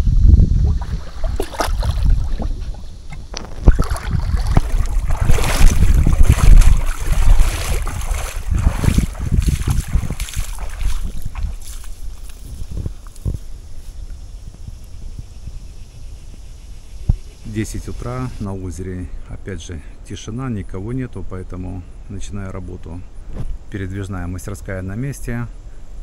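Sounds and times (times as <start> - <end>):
wind buffeting microphone: 0.0 - 18.4
water splashing: 0.6 - 12.4
knocks against hull: 0.8 - 11.8.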